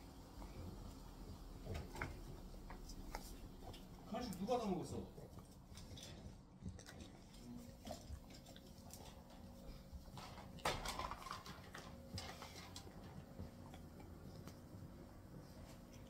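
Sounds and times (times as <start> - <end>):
dog chewing and gnawing: 0.4 - 16.0.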